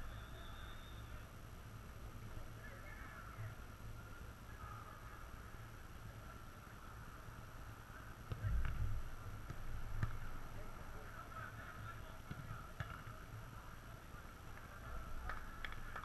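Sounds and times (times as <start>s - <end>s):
distant players calling: 0.0s - 1.4s
steady background hiss: 0.0s - 16.0s
ball strikes: 8.2s - 10.3s, 12.2s - 13.2s.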